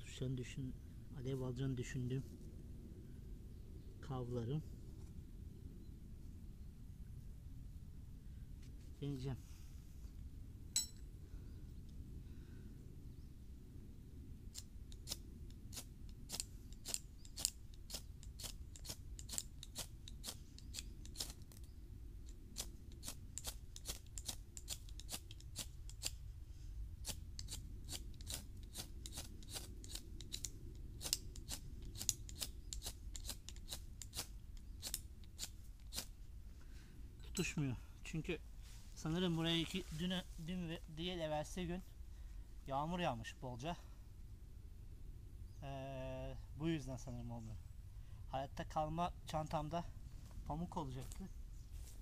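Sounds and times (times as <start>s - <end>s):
fire-starter rod scraped with striker: 14.6s - 21.6s, 27.0s - 36.1s.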